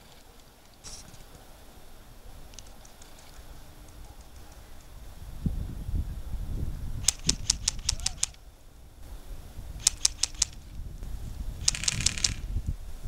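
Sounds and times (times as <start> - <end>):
airsoft rifle shots: 7.0 - 8.4, 9.8 - 10.6, 11.6 - 12.5.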